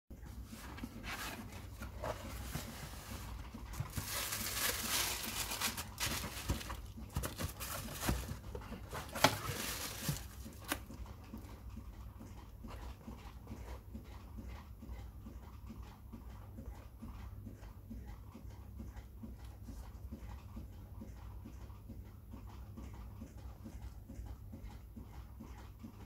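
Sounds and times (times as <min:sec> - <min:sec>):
tissue paper rustling: 0:00.4 - 0:10.8
cardboard box opening: 0:01.0 - 0:10.8.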